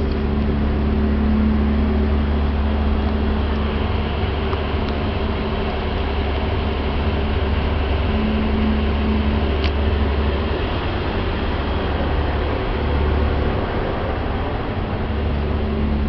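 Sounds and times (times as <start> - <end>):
ferry engines droning: 0.0 - 16.0.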